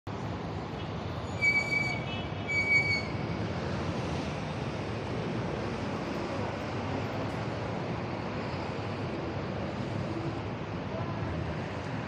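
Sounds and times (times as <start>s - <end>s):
city street traffic: 0.1s - 12.0s
short high-pitched squeals: 1.2s - 3.3s.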